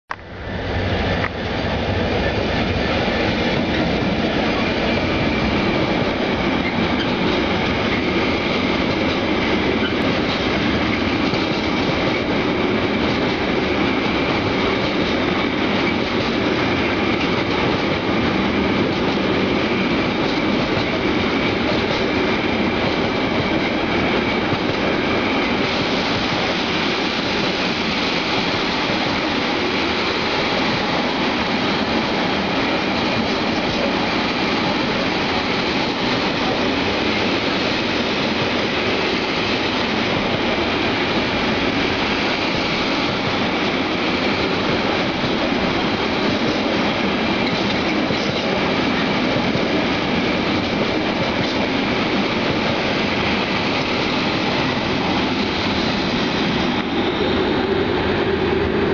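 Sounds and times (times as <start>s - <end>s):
freight train wagons clattering: 32.5s - 57.0s.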